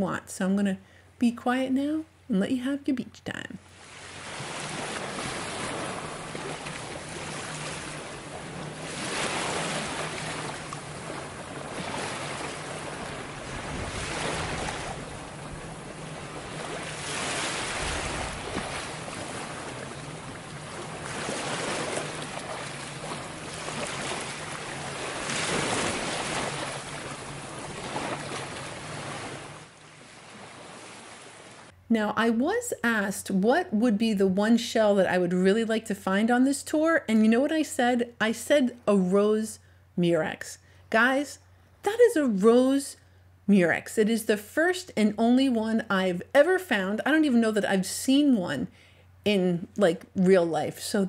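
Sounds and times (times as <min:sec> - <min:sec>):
small waves breaking on beach: 0:03.6 - 0:31.8.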